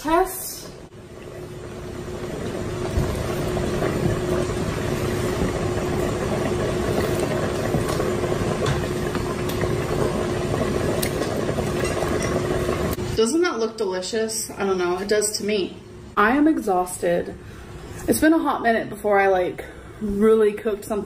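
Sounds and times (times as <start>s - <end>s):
steady hum: 0.0s - 21.0s
soup bubbling: 0.1s - 13.2s.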